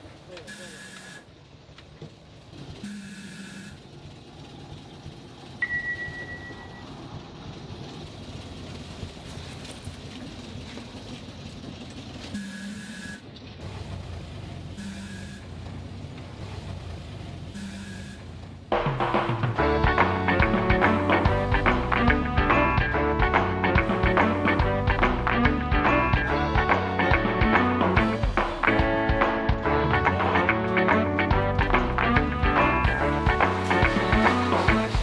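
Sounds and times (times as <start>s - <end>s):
bus engine rumble: 0.0s - 35.0s
short beeps: 0.4s - 1.3s, 2.8s - 3.8s, 5.6s - 7.0s, 12.4s - 13.2s, 14.8s - 15.5s, 17.6s - 18.2s
ringing ding: 5.6s - 6.9s.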